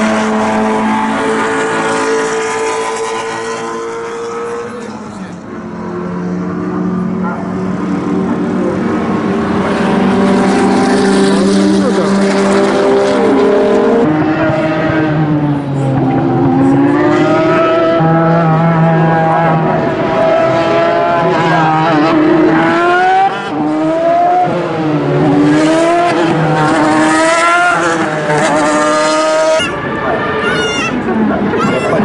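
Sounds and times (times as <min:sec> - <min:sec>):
racing car passing: 0:00.0 - 0:32.0
racing engines revving through corner: 0:00.0 - 0:32.0.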